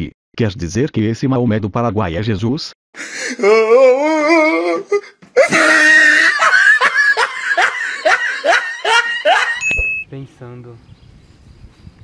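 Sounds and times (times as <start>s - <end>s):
person laughing: 3.2s - 9.6s.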